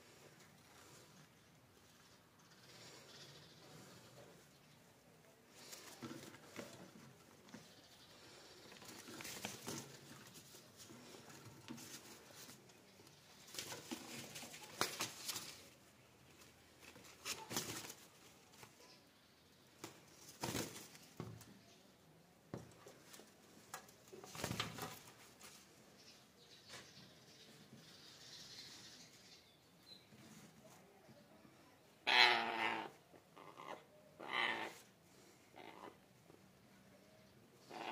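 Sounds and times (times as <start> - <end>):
bird wings fluttering: 8.8 - 11.2, 13.4 - 15.8, 16.8 - 18.7, 19.8 - 21.2, 24.0 - 25.6.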